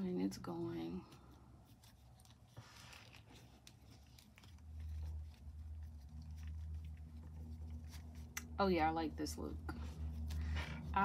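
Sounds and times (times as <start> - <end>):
fabric rustling: 0.0 - 11.0
low steady hum: 0.0 - 11.0.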